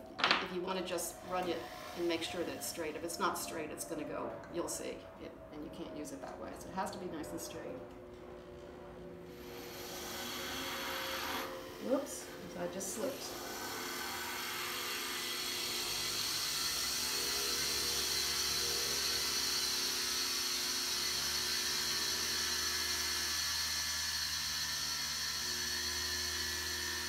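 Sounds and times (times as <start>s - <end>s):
rotary tool grinding stone: 9.3s - 27.0s.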